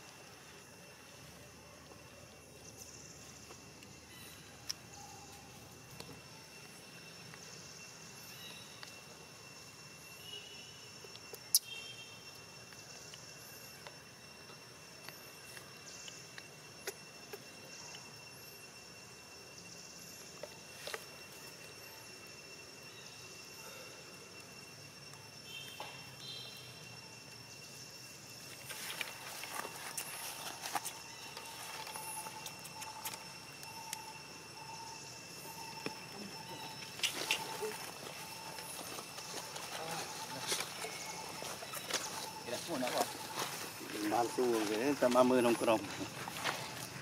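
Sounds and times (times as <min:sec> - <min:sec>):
insects droning: 0:00.0 - 0:47.0.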